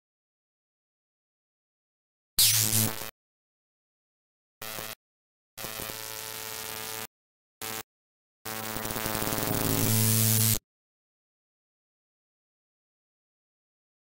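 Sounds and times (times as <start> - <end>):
electric sparking crackle: 8.8 - 10.6.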